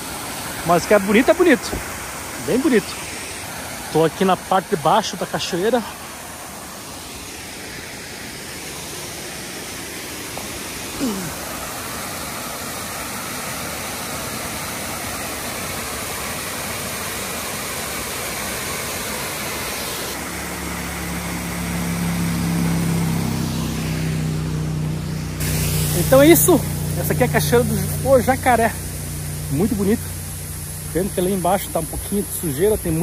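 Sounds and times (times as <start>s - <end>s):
waterfall rushing: 0.0s - 33.0s
low steady hum: 20.1s - 33.0s.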